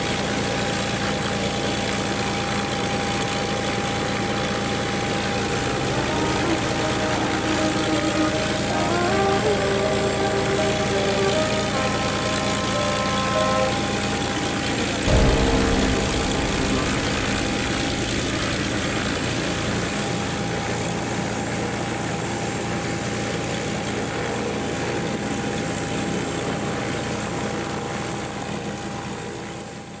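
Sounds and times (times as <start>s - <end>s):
jet engines running: 3.9s - 20.7s.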